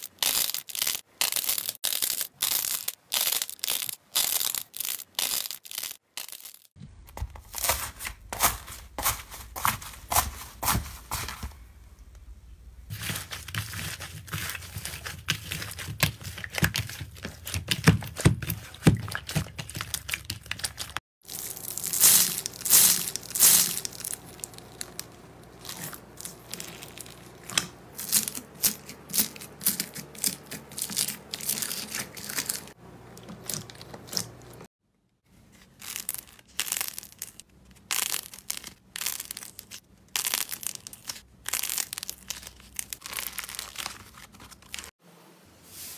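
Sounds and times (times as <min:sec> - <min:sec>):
hands squeezing crackling slime: 0:00.0 - 0:06.7, 0:35.7 - 0:44.9.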